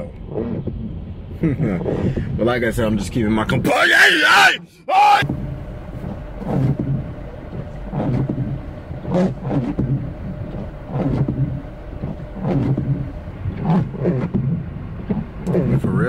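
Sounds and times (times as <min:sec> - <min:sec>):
car engine and road hum: 0:00.0 - 0:16.0
windshield wipers sweeping: 0:03.7 - 0:16.0.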